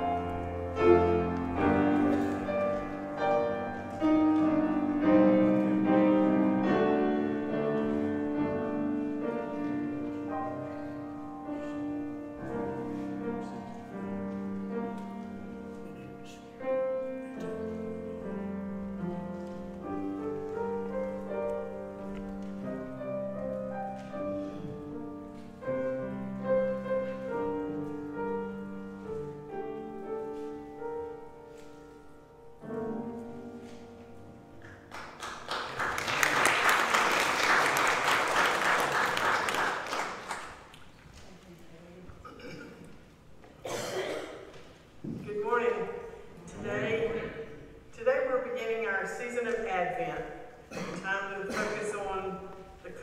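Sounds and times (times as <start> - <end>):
solo piano playing held chords: 0.0 - 34.9.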